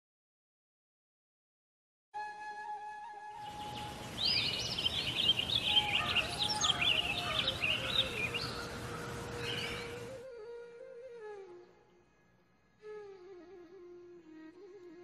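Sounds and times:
soft instrumental music: 2.2 - 4.8, 5.7 - 15.0
outdoor ambience hiss: 2.2 - 15.0
songbirds chirping and warbling: 3.4 - 10.2.

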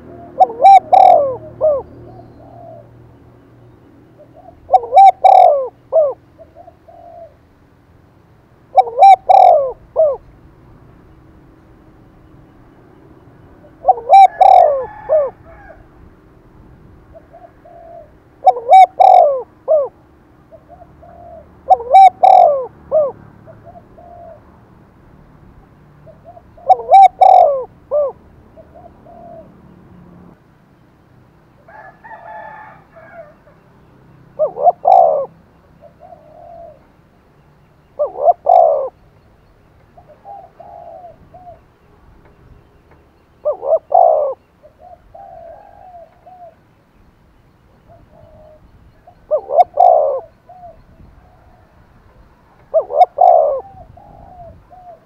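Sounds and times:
dove cooing: 0.0 - 3.0, 4.2 - 7.4, 8.7 - 10.4, 13.6 - 15.9, 17.0 - 24.5, 26.0 - 29.7, 34.3 - 36.9, 38.0 - 39.0, 40.0 - 41.7, 42.3 - 46.6, 47.8 - 51.8, 52.5 - 55.0.

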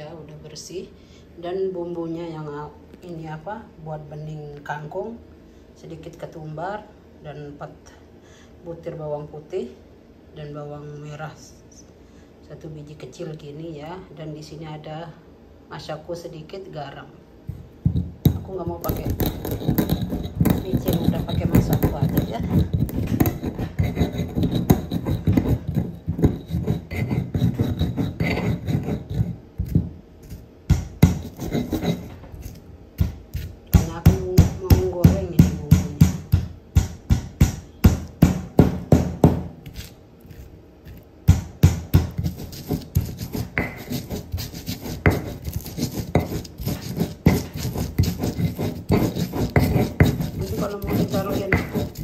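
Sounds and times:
pestle knocking: 17.8 - 39.9, 40.9 - 52.0
stone pestle grinding on stone: 17.8 - 52.0.

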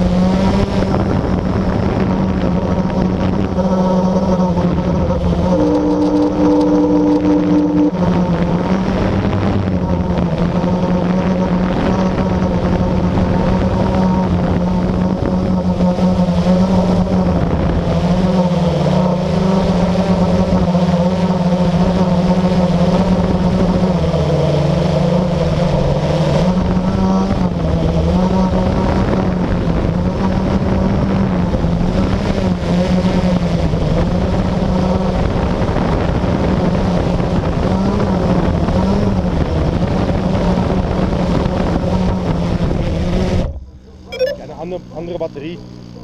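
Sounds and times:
quadcopter motors droning: 0.0 - 46.0.

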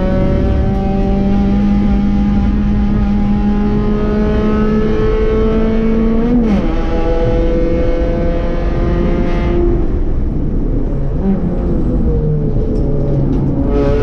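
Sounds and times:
race car engine revving through gears: 0.0 - 10.1, 11.1 - 14.0
wind and road noise: 0.0 - 14.0.

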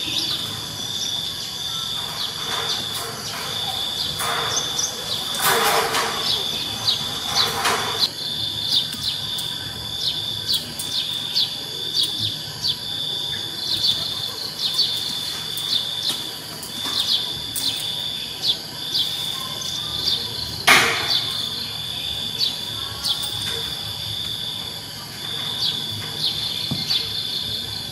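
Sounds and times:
high-pitched insect trill: 0.0 - 27.9.

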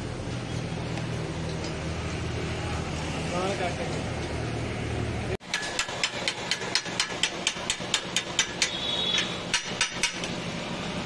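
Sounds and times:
hacksaw rasping on steel: 5.5 - 10.3.

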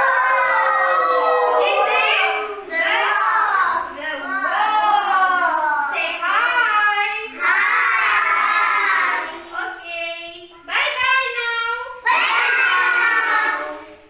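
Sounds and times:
young children singing: 0.0 - 3.8, 7.2 - 9.5, 12.0 - 14.0.

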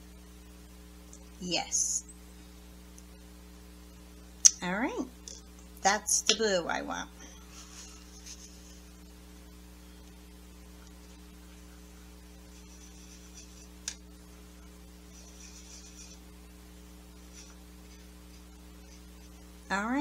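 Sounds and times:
electrical mains hum: 0.0 - 20.0
paintbrush brushing in palette: 7.3 - 9.0, 11.0 - 13.8, 14.6 - 19.4.

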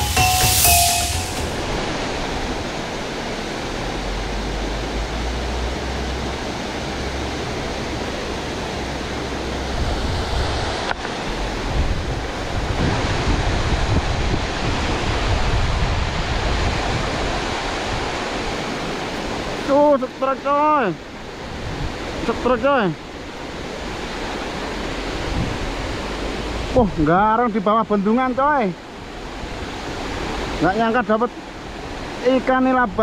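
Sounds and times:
water rushing over a weir: 0.0 - 33.0
wind buffeting microphone: 9.6 - 19.2, 21.4 - 22.2, 23.4 - 27.0.

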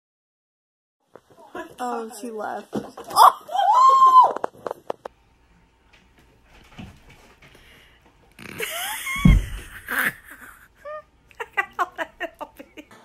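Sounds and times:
cat landing with heavy thump: 9.2 - 9.7.

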